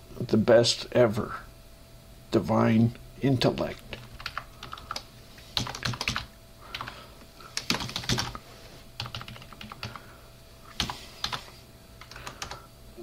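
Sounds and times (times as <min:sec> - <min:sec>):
faint steady hum: 0:00.0 - 0:13.0
typing on keyboard: 0:03.8 - 0:05.0, 0:05.6 - 0:06.9, 0:07.6 - 0:08.4, 0:09.0 - 0:10.0, 0:10.8 - 0:11.4, 0:12.0 - 0:12.6.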